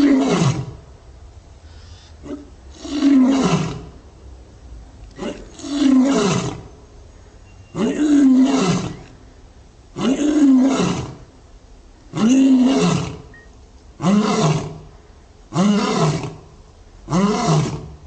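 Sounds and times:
lion roaring: 0:02.2 - 0:04.0, 0:05.2 - 0:06.7, 0:07.8 - 0:09.1, 0:10.0 - 0:11.2, 0:12.1 - 0:13.3, 0:14.0 - 0:14.9, 0:15.5 - 0:16.5, 0:17.1 - 0:17.9.

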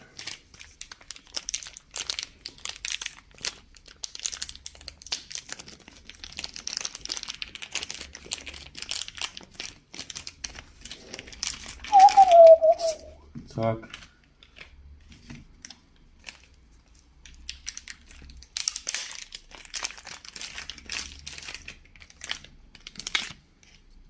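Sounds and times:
plastic bags crinkling: 0:00.0 - 0:12.3, 0:15.6 - 0:23.4.

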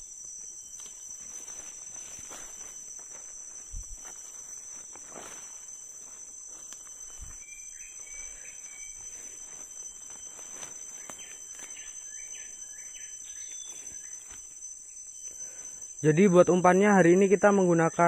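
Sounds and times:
high-pitched insect drone: 0:00.0 - 0:18.0
bird chirping: 0:07.1 - 0:14.3.

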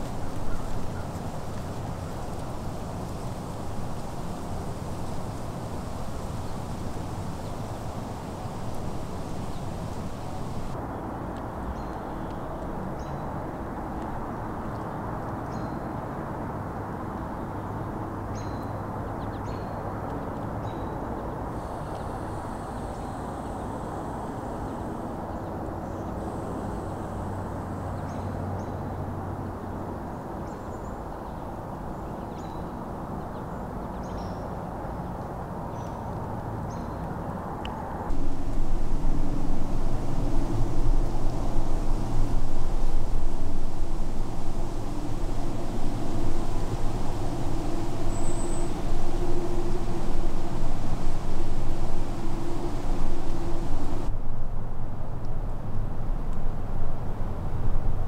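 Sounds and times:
low rumble: 0:38.1 - 0:54.2.

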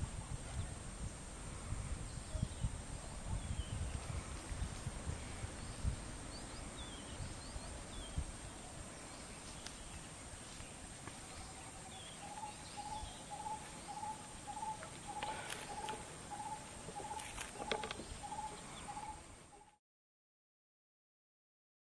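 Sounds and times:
high insect drone: 0:00.0 - 0:19.7
bird chirps: 0:05.5 - 0:19.8
bird hooting: 0:11.3 - 0:19.8.

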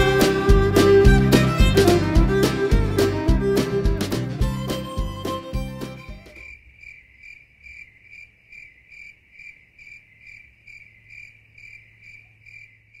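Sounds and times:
cricket chirping: 0:06.3 - 0:13.0.

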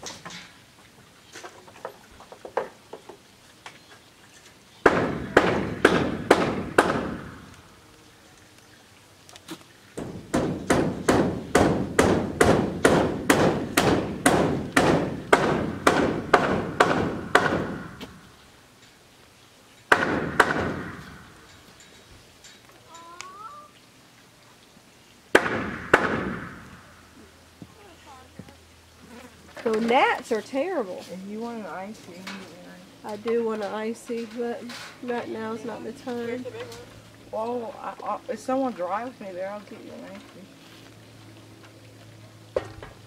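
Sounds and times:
hammer blows: 0:10.0 - 0:18.2.

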